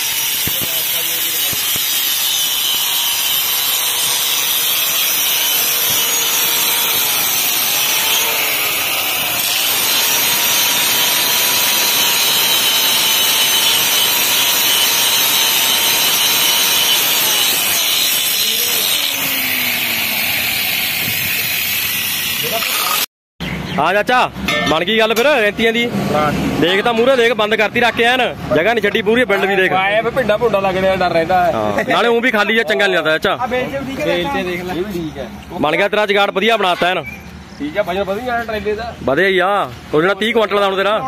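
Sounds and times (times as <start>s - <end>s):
grinder motor whine: 0.0s - 23.0s
angle grinder grinding steel: 0.0s - 23.1s.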